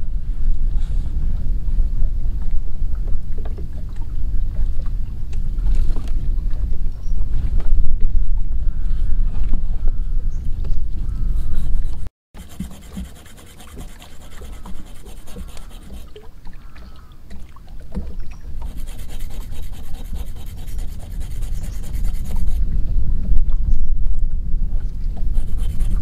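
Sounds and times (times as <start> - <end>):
wind rumble on microphone: 0.0 - 26.0
metal point scraping a block: 11.6 - 16.1.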